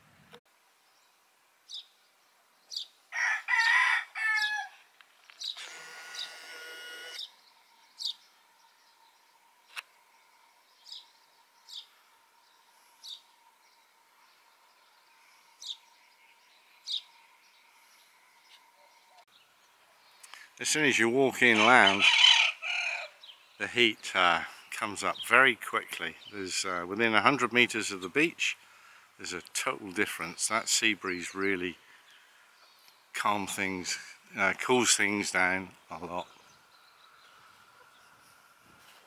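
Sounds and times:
small birds chirping: 0.7 - 3.1, 4.2 - 6.5, 7.1 - 39.0
rooster crowing: 3.1 - 4.8, 21.6 - 23.2.

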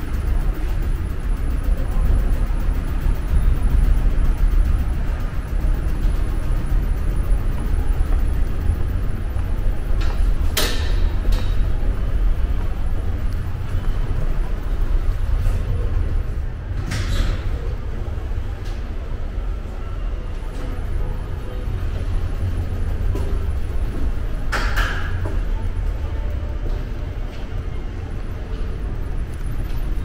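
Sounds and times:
steady low rumble: 0.0 - 30.0
sharp clicks and knocks: 9.9 - 11.7, 24.4 - 25.5.

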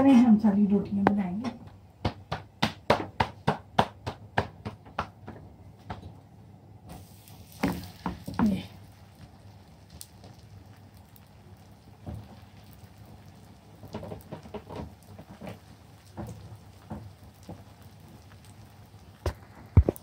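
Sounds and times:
flatbread laid onto frying pan: 6.9 - 10.8
oil sizzling and crackling: 6.9 - 20.0.

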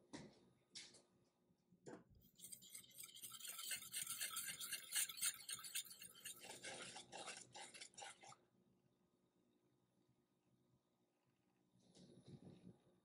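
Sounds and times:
wire whisk mixing batter in bowl: 2.2 - 8.4.

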